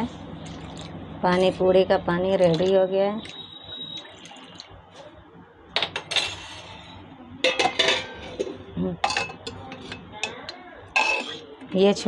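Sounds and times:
steel kitchenware clinking: 0:07.4 - 0:11.5.

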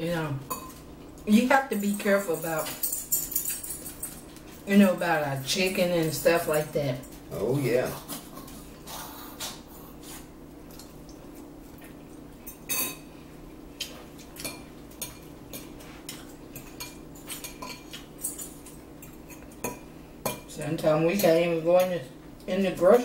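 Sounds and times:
steady low hum: 0:00.0 - 0:23.0
fork clinking and scraping in bowl: 0:01.8 - 0:04.4, 0:14.3 - 0:20.5.

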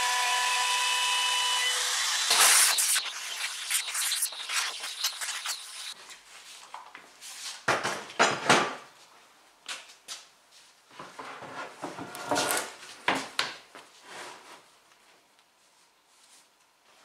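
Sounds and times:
dust extractor hose hissing: 0:00.0 - 0:06.0.

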